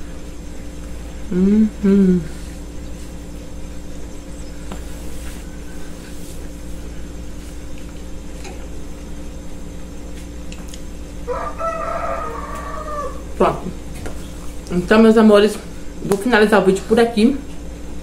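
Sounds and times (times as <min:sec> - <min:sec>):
steady low hum: 0:00.0 - 0:18.0
rooster crowing: 0:11.2 - 0:13.4.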